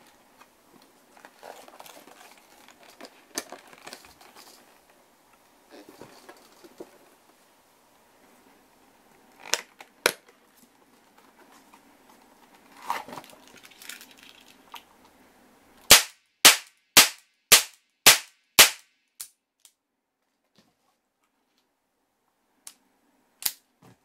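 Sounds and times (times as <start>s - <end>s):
cap revolver firing: 15.9s - 18.8s.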